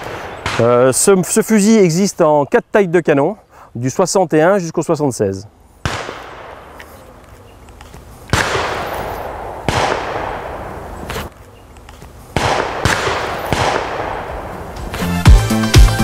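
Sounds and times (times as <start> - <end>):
shotgun shots echoing: 0.0 - 1.3, 5.8 - 7.2, 8.3 - 11.3, 12.3 - 15.1.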